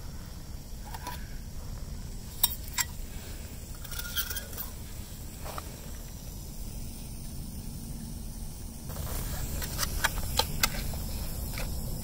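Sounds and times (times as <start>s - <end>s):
steady low rumble: 0.0s - 12.0s
metal pot and lid clinking: 3.8s - 4.7s
metal scrapes: 3.8s - 4.8s.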